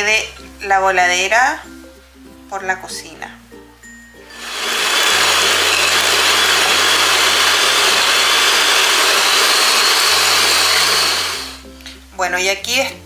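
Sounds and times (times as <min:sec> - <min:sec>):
electric hand mixer running: 0:04.3 - 0:11.6.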